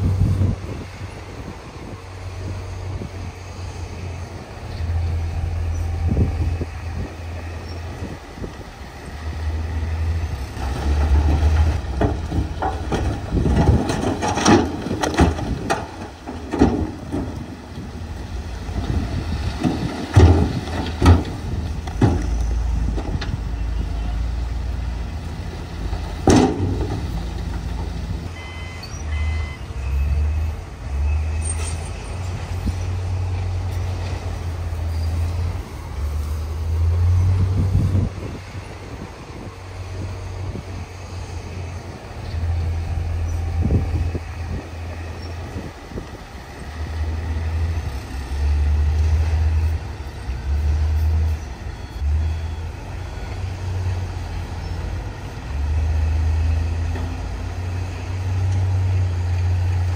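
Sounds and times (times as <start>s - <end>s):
dump truck diesel engine running: 0.0s - 59.9s
rocks tumbling and clattering: 10.6s - 28.3s
short high beeps: 28.4s - 30.1s.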